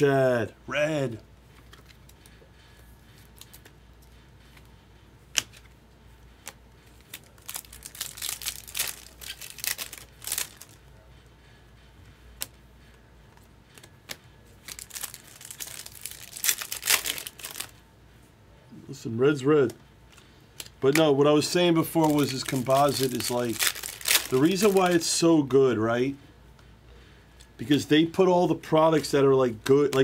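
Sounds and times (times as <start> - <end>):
foil wrapper crinkling and tearing: 6.9 - 10.8, 14.6 - 17.7, 21.8 - 25.1.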